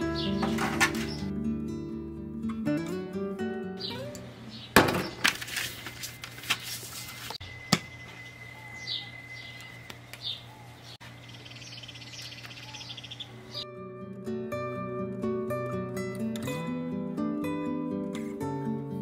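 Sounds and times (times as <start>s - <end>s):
bird trill: 0.0s - 1.3s, 3.8s - 5.2s, 7.4s - 13.7s
birds chirping: 0.0s - 1.3s, 3.6s - 5.4s, 7.1s - 13.7s.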